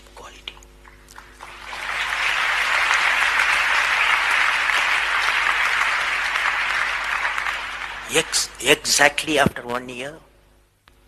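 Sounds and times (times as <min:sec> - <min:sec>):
large audience applauding: 0:00.9 - 0:08.7.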